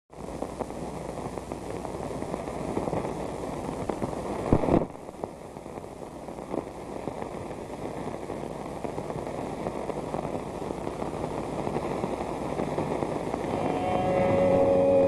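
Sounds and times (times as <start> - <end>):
film soundtrack hiss and crackle: 0.1 - 15.0.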